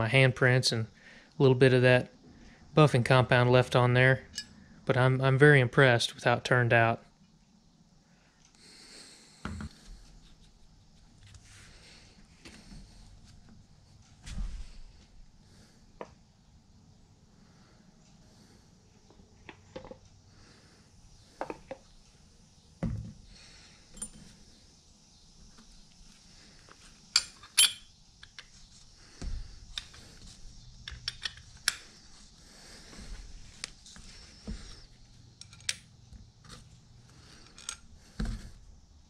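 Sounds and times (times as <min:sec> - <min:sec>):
metal parts and tools clinking: 0:04.3 - 0:04.5, 0:23.9 - 0:24.3, 0:27.1 - 0:28.4, 0:37.4 - 0:37.9.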